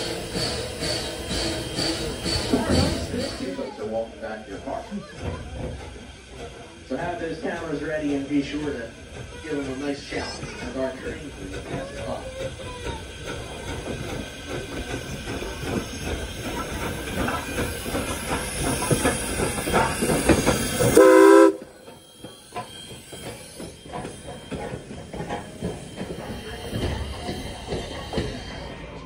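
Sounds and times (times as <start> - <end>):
steam locomotive passing: 0.0 - 29.0
wheels clattering on rails: 0.0 - 29.0
steam whistle blast: 21.0 - 21.7.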